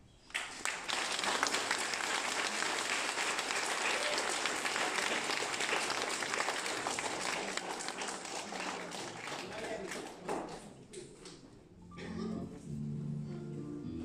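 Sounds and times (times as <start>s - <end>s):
audience applauding: 0.3s - 10.8s.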